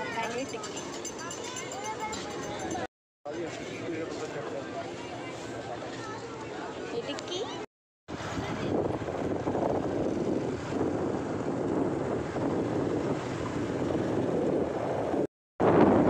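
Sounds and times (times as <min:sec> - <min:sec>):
wind and road noise: 0:08.1 - 0:16.0
wind buffeting microphone: 0:08.1 - 0:16.0.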